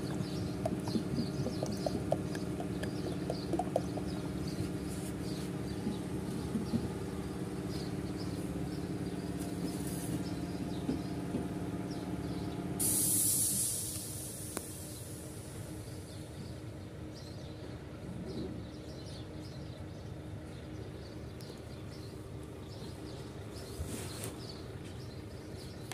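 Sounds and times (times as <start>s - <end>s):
engine idling: 0.0s - 25.9s
loud hiss: 12.8s - 16.0s.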